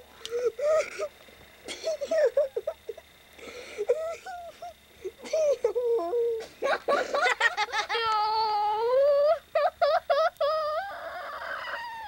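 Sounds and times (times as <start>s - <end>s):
breathy wheezy gasps: 3.4s - 4.0s.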